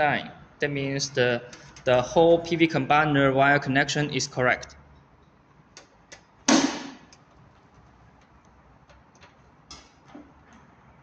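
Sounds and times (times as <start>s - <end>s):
loud knock: 6.5s - 7.0s.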